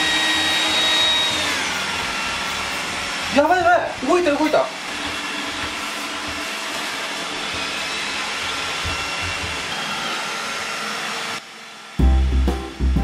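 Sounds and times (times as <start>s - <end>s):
robot vacuum whirring: 0.0s - 12.0s.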